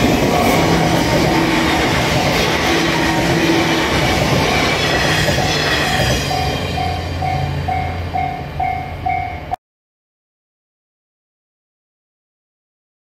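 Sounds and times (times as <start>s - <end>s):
railroad crossing bell ringing: 0.0s - 9.6s
train wheels on rails: 0.0s - 9.6s.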